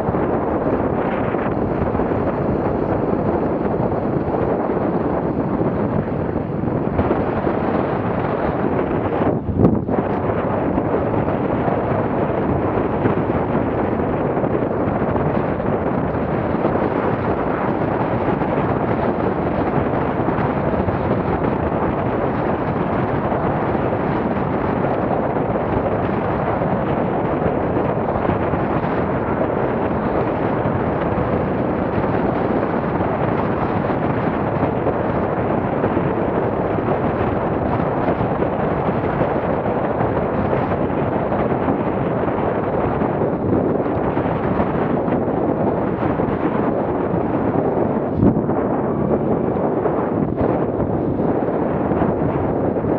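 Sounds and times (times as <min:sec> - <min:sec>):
wind buffeting microphone: 0:00.0 - 0:52.9.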